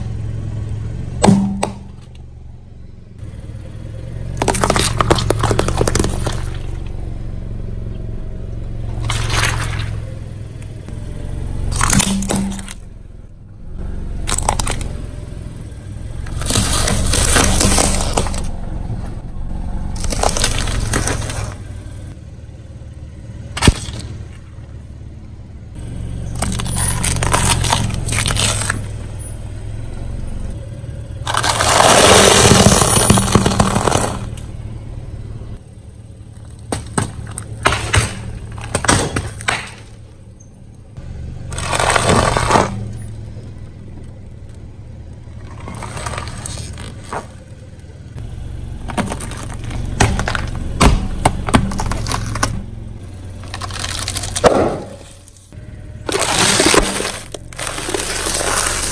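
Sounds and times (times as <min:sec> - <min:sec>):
tyre crushing dry food and plastic: 0:04.4 - 0:06.8, 0:08.9 - 0:10.0, 0:11.7 - 0:12.8, 0:14.2 - 0:15.0, 0:16.2 - 0:19.0, 0:20.0 - 0:21.7, 0:26.3 - 0:29.0, 0:31.3 - 0:34.4, 0:36.4 - 0:40.0, 0:41.5 - 0:43.0, 0:45.4 - 0:47.4, 0:48.8 - 0:58.9.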